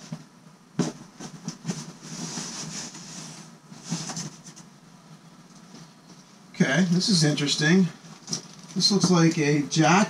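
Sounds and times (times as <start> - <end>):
rustling of clothing and box: 0.8 - 4.7, 8.1 - 9.3.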